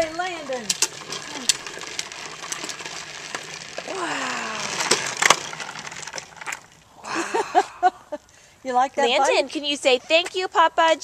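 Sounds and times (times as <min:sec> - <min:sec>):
wheel clicks: 0:00.0 - 0:06.8
plastic wheels rolling on pavement: 0:00.0 - 0:07.2.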